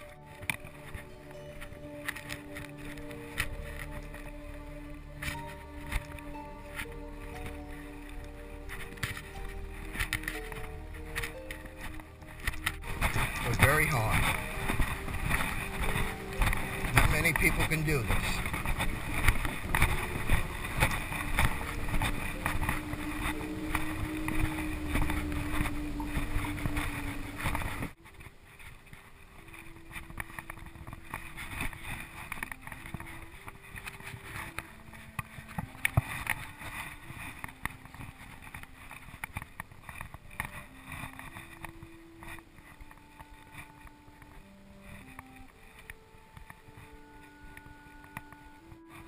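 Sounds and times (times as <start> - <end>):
low held tone: 0.0 - 28.0
wind rumbling on microphone: 0.0 - 49.0.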